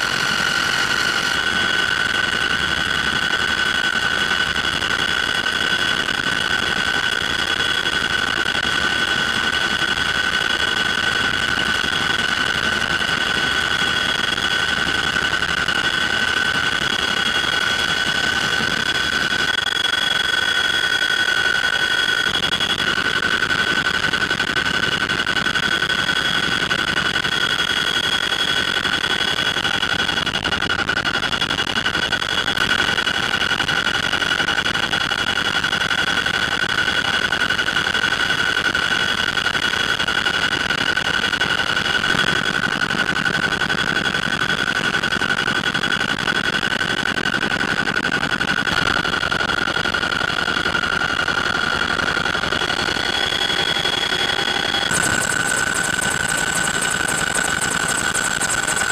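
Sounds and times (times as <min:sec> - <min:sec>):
high whine: 0:00.0 - 0:02.6, 0:09.5 - 0:28.3, 0:51.2 - 0:58.9
helicopter engine and rotor noise: 0:00.0 - 0:58.9.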